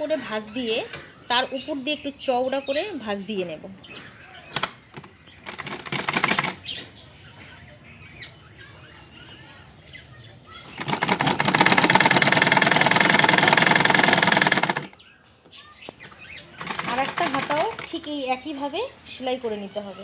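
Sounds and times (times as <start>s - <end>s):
sewing machine stitching: 4.6s - 6.6s, 10.7s - 15.0s, 16.6s - 18.0s.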